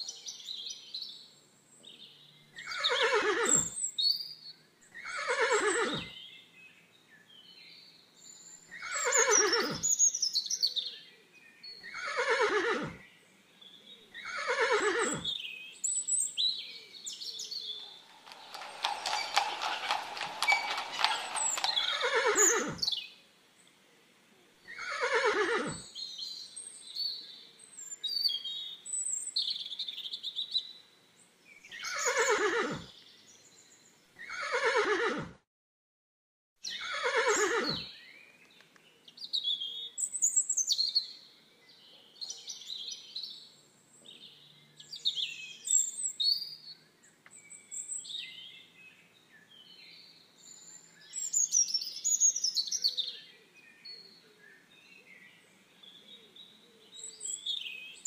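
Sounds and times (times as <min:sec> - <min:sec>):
small birds chirping: 0:00.0 - 0:23.7, 0:36.6 - 0:58.0
horse whinnying: 0:02.6 - 0:03.8, 0:05.0 - 0:06.2, 0:08.8 - 0:09.9, 0:11.9 - 0:13.0, 0:14.2 - 0:15.3, 0:17.9 - 0:23.0, 0:24.7 - 0:25.8, 0:31.8 - 0:32.9, 0:34.2 - 0:35.4, 0:36.7 - 0:37.9.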